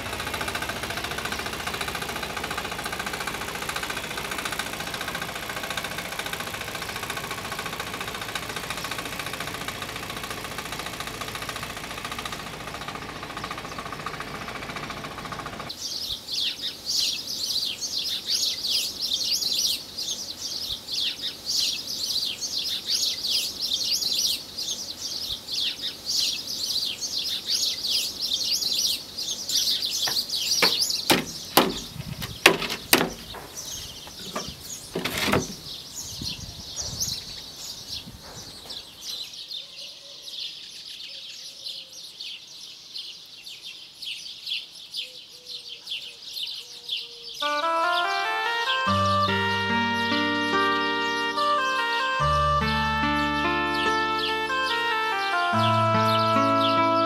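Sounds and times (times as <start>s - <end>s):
engine hum: 0.0s - 15.7s, 47.4s - 57.0s
birds chirping: 15.7s - 42.8s, 44.2s - 57.0s
wooden board knocks: 30.1s - 33.5s.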